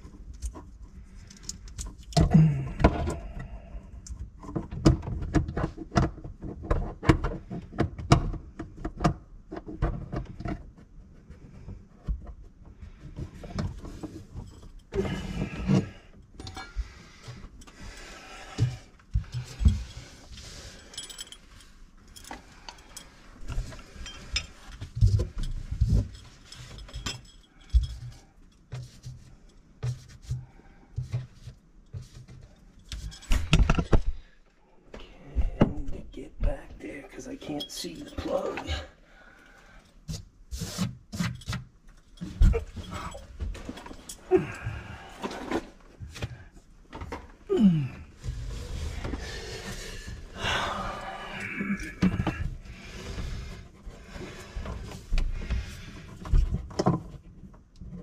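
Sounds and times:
objects knocking and clicking: 0:04.1 - 0:34.2
objects clattering: 0:41.2 - 0:58.0.

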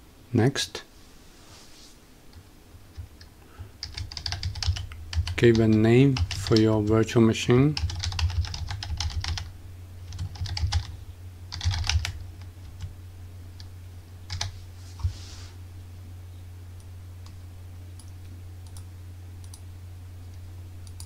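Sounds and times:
steady low hum: 0:00.0 - 0:21.0
keyboard typing: 0:03.8 - 0:06.7, 0:07.8 - 0:09.5, 0:10.1 - 0:10.9, 0:11.5 - 0:12.9, 0:14.3 - 0:14.5.

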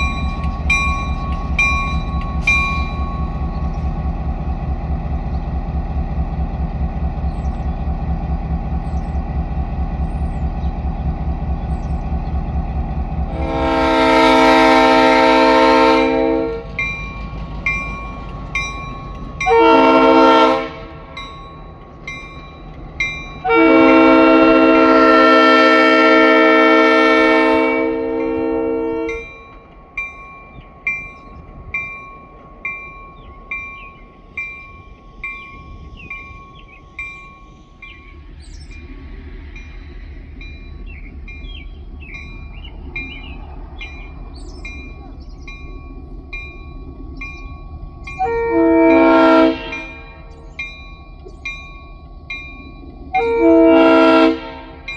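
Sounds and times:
locomotive bell ringing: 0:00.0 - 0:04.2, 0:13.5 - 0:54.9
locomotive engine running: 0:00.0 - 0:54.9
locomotive horn blasts: 0:13.3 - 0:16.7, 0:19.4 - 0:21.2, 0:23.4 - 0:29.4, 0:48.2 - 0:50.3, 0:53.1 - 0:54.9.

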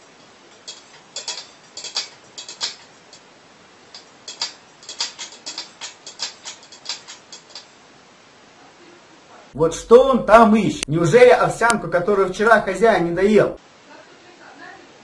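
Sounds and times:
cat claws scraping steel bowl: 0:04.0 - 0:07.7.

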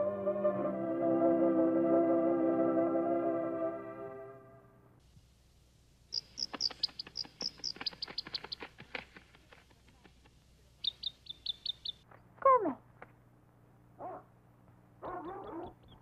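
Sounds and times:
baby bird peeping: 0:06.1 - 0:08.7, 0:10.8 - 0:12.0, 0:15.0 - 0:16.0.

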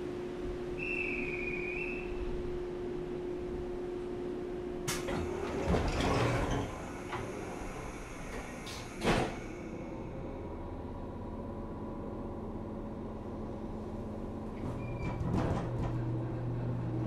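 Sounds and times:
train car hum: 0:00.0 - 0:17.0
sliding door thud: 0:04.9 - 0:07.4, 0:08.3 - 0:09.5.

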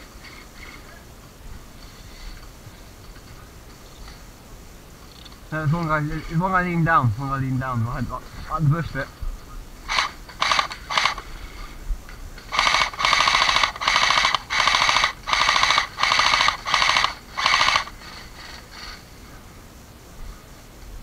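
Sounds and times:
airsoft rifle firing bursts: 0:09.9 - 0:11.3, 0:12.5 - 0:19.0.

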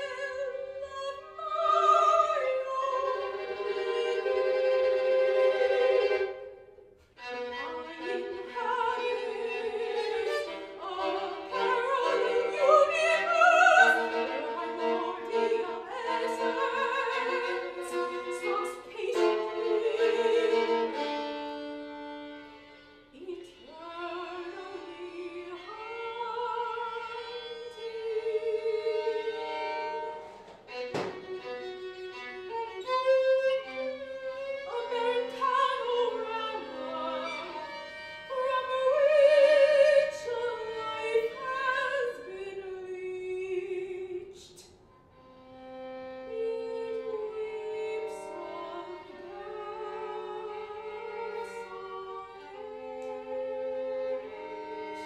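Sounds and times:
soprano singing: 0:00.0 - 0:44.8, 0:45.5 - 0:55.0
violin: 0:00.0 - 0:55.0
sharp tap: 0:30.4 - 0:31.2.

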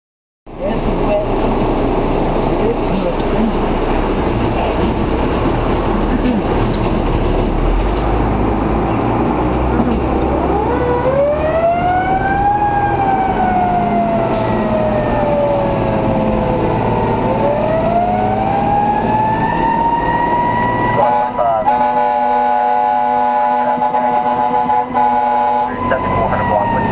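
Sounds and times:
truck engine running: 0:00.5 - 0:26.9
siren winding up and falling: 0:10.3 - 0:21.1.

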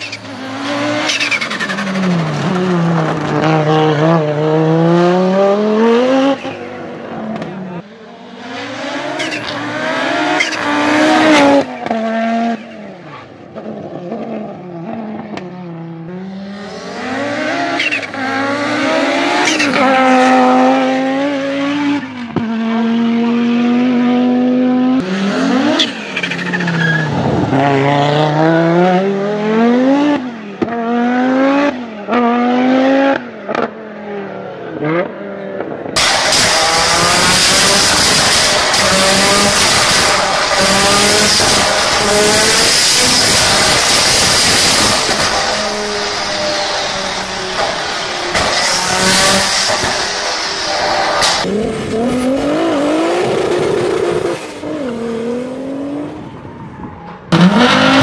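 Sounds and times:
rally car engine accelerating: 0:00.1 - 0:56.4, 0:57.2 - 0:58.0
car engine on a dyno: 0:35.9 - 0:56.3, 0:57.1 - 0:58.0.

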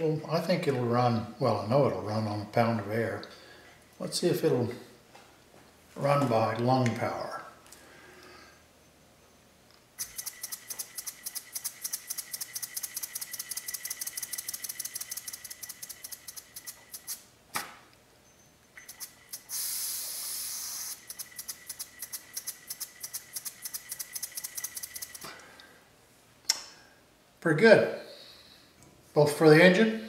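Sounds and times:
loud steady hiss: 0:18.9 - 0:23.6.

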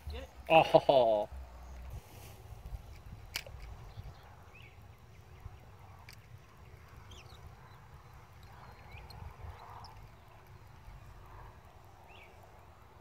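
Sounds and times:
wind rumbling on microphone: 0:01.3 - 0:13.0
faint bird chirps: 0:03.8 - 0:12.5.

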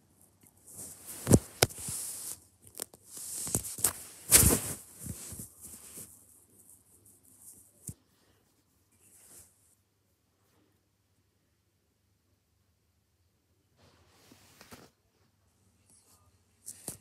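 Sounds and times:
hand rustling cat fur: 0:00.6 - 0:09.8, 0:13.8 - 0:15.0.

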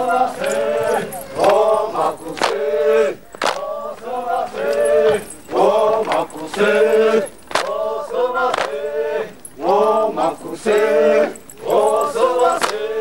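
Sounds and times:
men chanting war cries: 0:00.0 - 0:13.0.

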